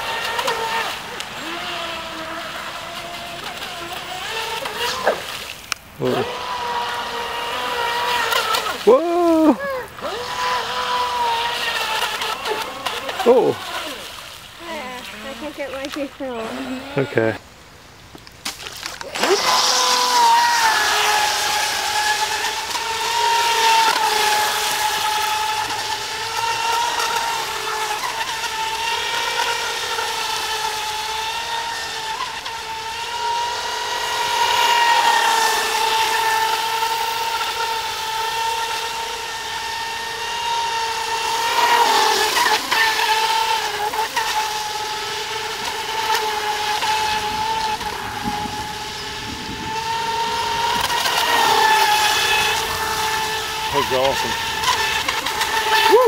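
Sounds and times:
electric motor whining: 0.0 - 56.0.

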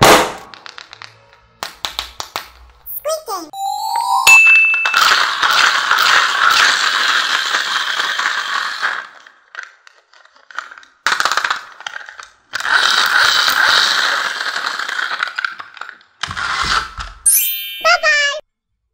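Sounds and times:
toy car wheel motor whirring: 5.0 - 10.9, 11.7 - 17.1.

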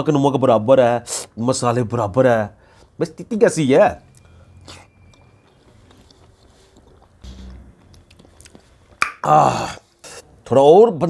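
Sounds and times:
mouth clicks: 4.1 - 9.4
person chewing: 4.1 - 10.3.

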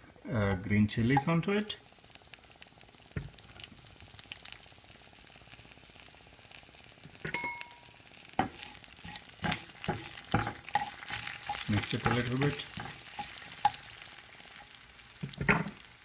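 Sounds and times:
spices sizzling in hot oil: 0.0 - 16.0
short ringing tone: 7.4 - 7.9
wooden spatula scraping pan: 8.4 - 13.8.

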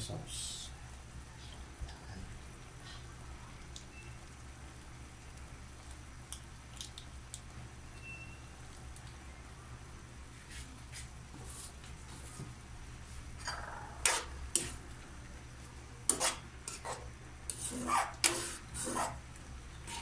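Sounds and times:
steady low hum: 0.0 - 20.0
sauce bubbling and crackling: 1.0 - 9.8
sharp pops and ticks: 6.2 - 7.5.

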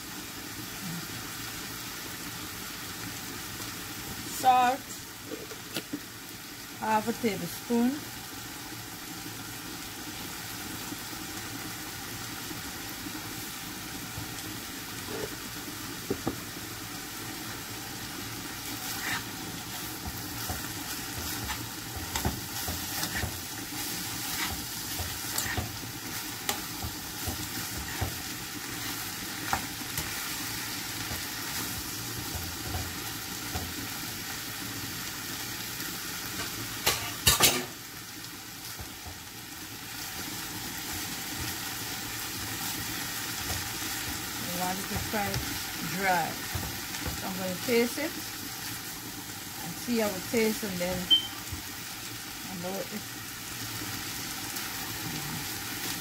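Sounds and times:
food sizzling in a frying pan: 0.0 - 56.0
utensil tapping and scraping pan: 20.0 - 23.4.

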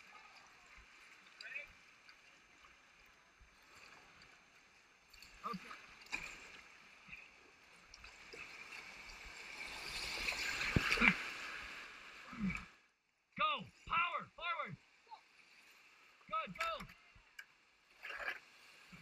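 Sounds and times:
creek water rushing: 5.2 - 12.6
paddle splashes: 5.2 - 12.7, 17.9 - 19.0.

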